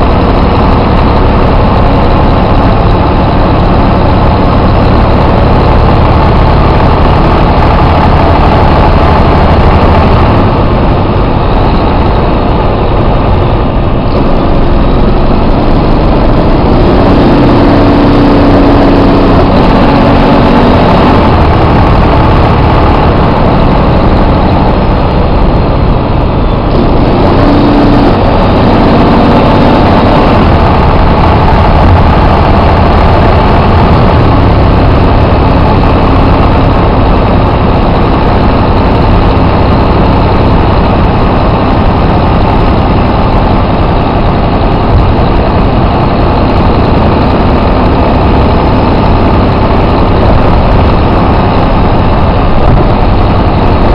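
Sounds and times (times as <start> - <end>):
coach diesel engine running: 0.0 - 53.9.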